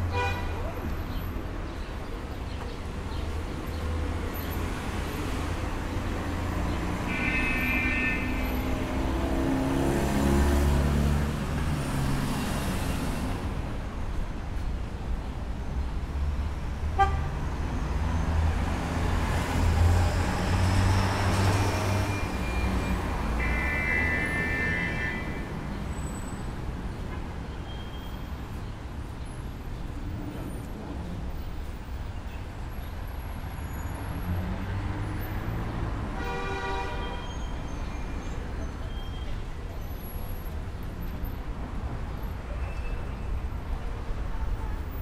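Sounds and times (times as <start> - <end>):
cars passing: 0.0 - 27.4, 28.3 - 42.5
car horn toot: 7.1 - 8.7, 23.3 - 25.5.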